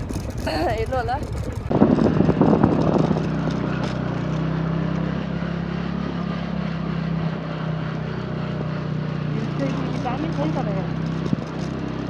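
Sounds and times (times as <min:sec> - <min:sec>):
motorbike engine droning: 0:00.0 - 0:12.0.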